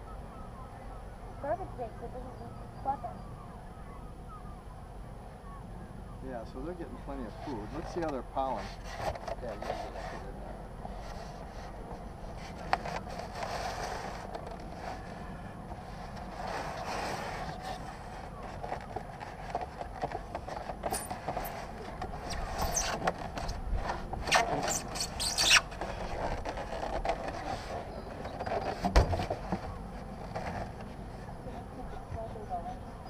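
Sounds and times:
foam board scraping and squeaking: 7.2 - 10.3, 10.9 - 31.1.

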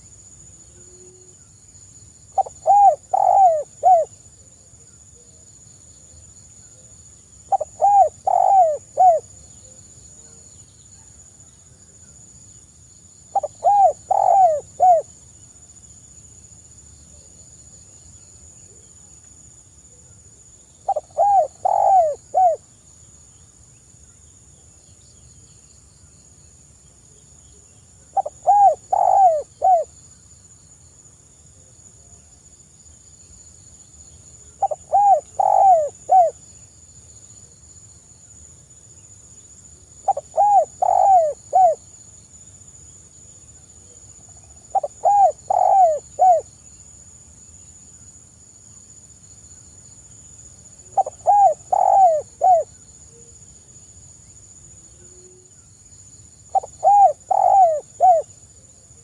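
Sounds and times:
dove cooing: 2.4 - 4.1, 7.5 - 9.3, 13.3 - 15.1, 20.9 - 22.6, 28.2 - 29.9, 34.6 - 36.4, 40.1 - 41.8, 44.7 - 46.5, 51.0 - 52.7, 56.5 - 58.3.

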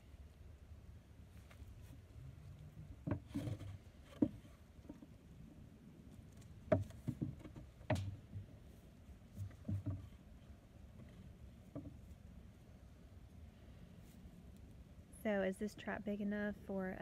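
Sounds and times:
wooden knocks and clunks: 2.8 - 5.3, 6.3 - 12.2.

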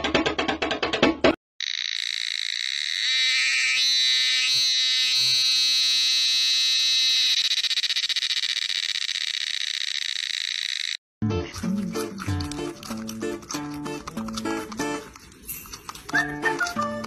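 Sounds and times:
cicada buzzing: 1.6 - 11.0.

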